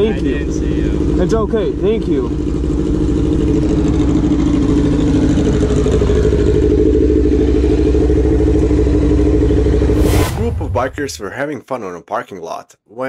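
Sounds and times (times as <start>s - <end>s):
motorcycle engine running: 0.0s - 10.0s.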